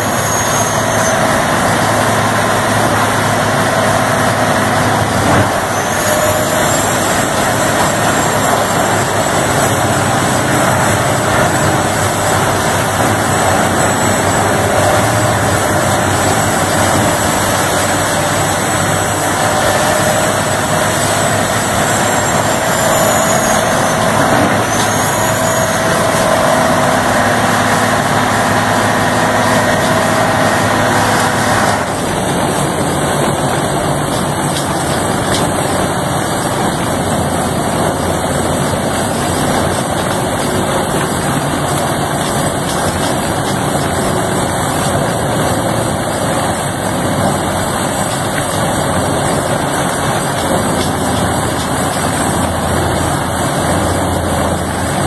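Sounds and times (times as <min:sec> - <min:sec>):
turbo whistle: 0:00.0 - 0:32.0
diesel engine under load: 0:00.0 - 0:55.0
grinding wood: 0:00.0 - 0:55.0.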